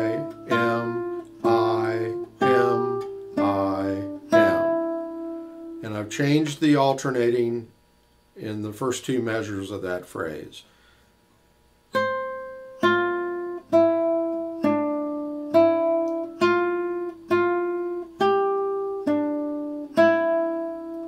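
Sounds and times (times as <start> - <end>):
classical guitar melody: 0.0 - 6.6, 11.9 - 21.0.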